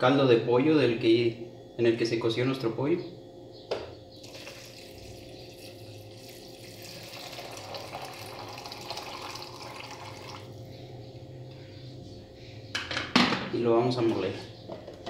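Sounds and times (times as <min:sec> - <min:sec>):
liquid pouring into a jar: 0:04.2 - 0:10.5.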